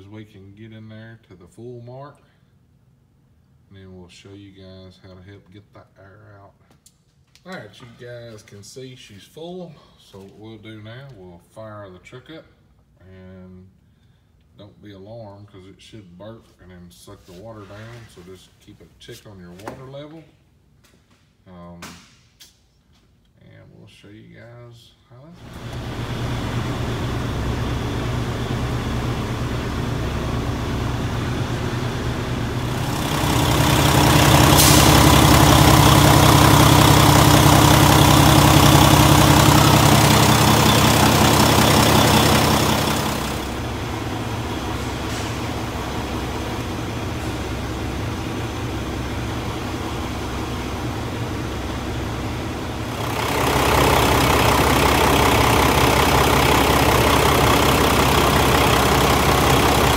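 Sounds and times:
diesel engine idling: 25.4 - 59.9.

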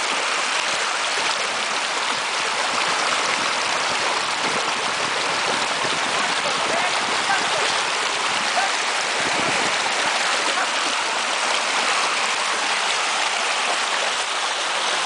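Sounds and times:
stream rushing over stones: 0.0 - 15.0.

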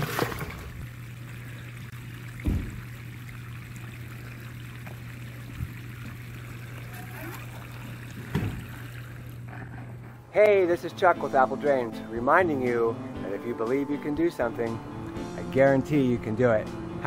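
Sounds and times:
water pouring into a gutter: 0.0 - 9.5.

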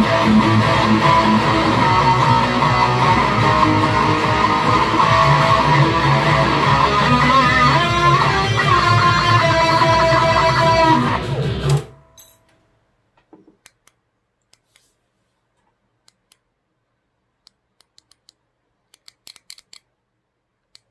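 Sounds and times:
electric guitar strummed chords: 0.0 - 12.0.

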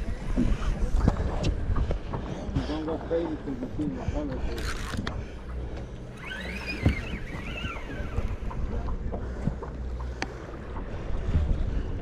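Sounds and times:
wind on microphone: 0.0 - 2.8, 6.2 - 9.9, 10.5 - 12.0
boat engine humming: 0.0 - 12.0.

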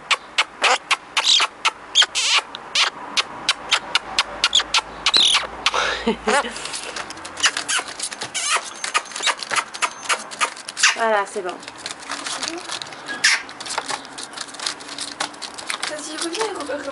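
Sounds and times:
magpie clicking: 0.1 - 5.8, 6.6 - 16.9
magpie squeaky calls: 0.1 - 6.5, 7.4 - 11.1, 13.0 - 14.4.

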